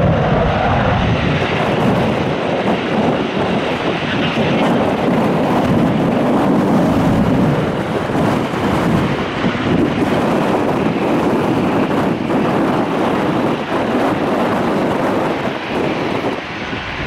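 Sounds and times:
jet flying low overhead: 0.0s - 17.0s.

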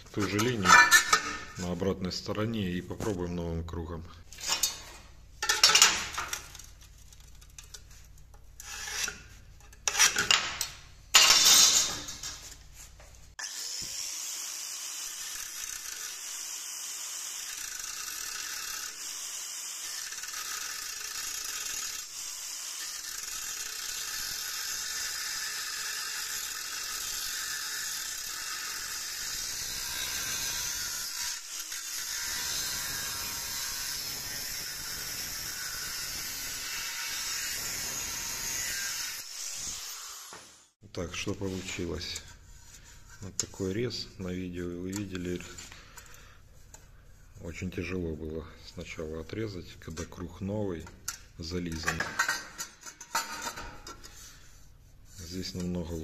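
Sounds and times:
angle grinder cutting steel: 0.1s - 1.8s, 8.6s - 12.5s, 13.4s - 40.8s
scriber scraping on steel: 0.1s - 1.8s, 4.3s - 12.9s.

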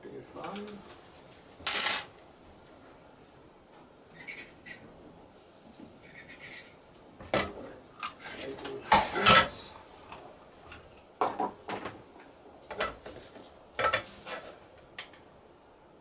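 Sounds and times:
objects knocking on wooden table: 11.2s - 12.0s.

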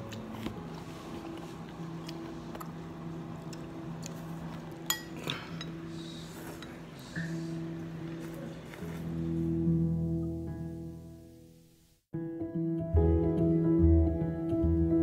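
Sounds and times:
utensils clinking on ceramic bowl: 4.8s - 5.8s.

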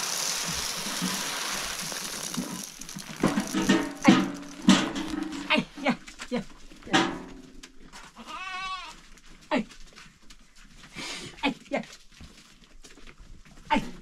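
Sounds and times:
goat or sheep bleating: 8.2s - 9.0s.

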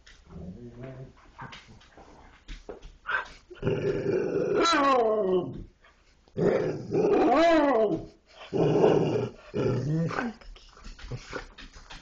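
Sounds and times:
dogs making growly calls: 3.5s - 5.6s, 6.4s - 10.4s.

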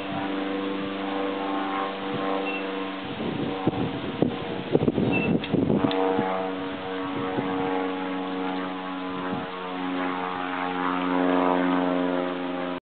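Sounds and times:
propeller aircraft engine droning: 0.0s - 12.8s.

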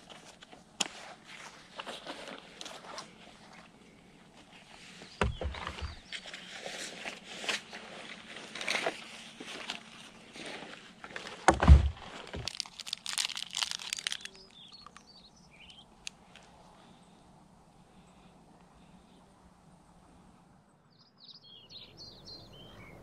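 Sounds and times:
rustling of gear being handled: 0.0s - 3.8s, 4.4s - 15.0s
crackling clicks: 12.4s - 16.5s.

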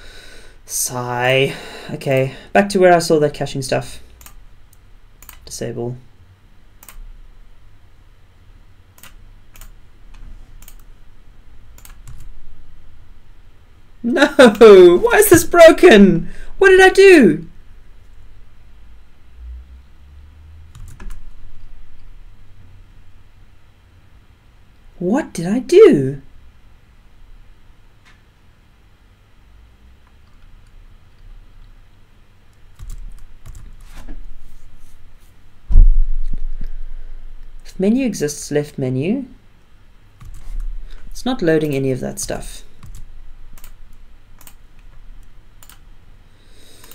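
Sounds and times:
low steady hum: 0.0s - 46.9s
keyboard and mouse clicks: 4.2s - 4.4s, 5.2s - 5.5s, 6.8s - 7.0s, 9.0s - 10.9s, 11.8s - 12.3s, 20.7s - 21.3s, 32.7s - 34.0s, 40.2s - 40.7s, 41.6s - 45.8s
computer keyboard keys clicking: 5.2s - 5.4s, 9.0s - 9.7s, 10.6s - 10.9s, 11.8s - 12.3s, 20.7s - 21.2s, 32.7s - 33.8s, 42.8s - 43.8s, 44.4s - 44.6s, 45.6s - 45.8s.

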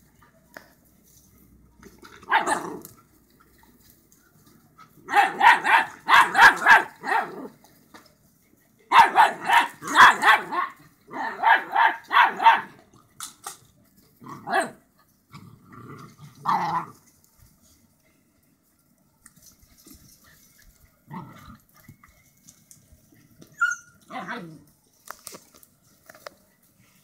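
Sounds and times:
dogs barking: 5.1s - 7.4s, 8.9s - 12.8s.

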